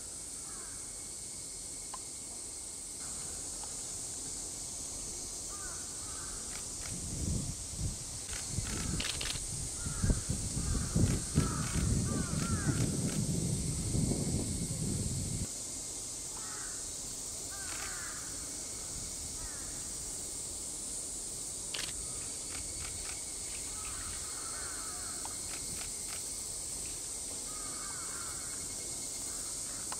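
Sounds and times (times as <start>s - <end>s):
insects droning: 0.0s - 29.9s
crows cawing: 9.8s - 12.8s, 16.4s - 16.8s, 17.5s - 18.3s, 23.8s - 25.2s, 27.5s - 28.4s.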